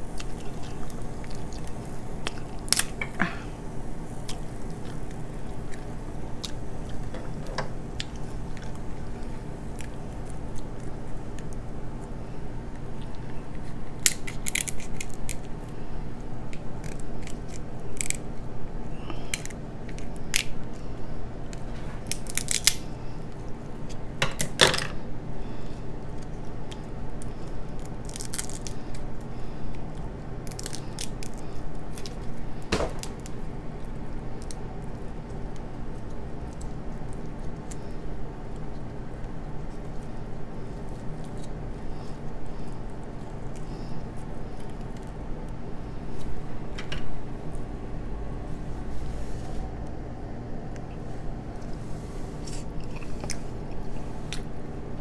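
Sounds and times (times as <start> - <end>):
steady low hum: 0.0 - 55.0
shears cracking crab shell: 0.1 - 3.4, 12.9 - 15.6, 16.4 - 18.4, 19.1 - 20.8, 21.5 - 25.0, 26.0 - 33.4.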